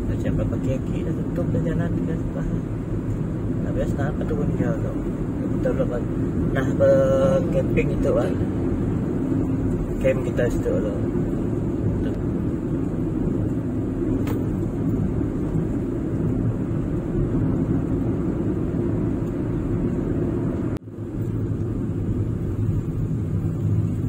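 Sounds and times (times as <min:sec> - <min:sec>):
car driving on road: 0:00.0 - 0:24.0.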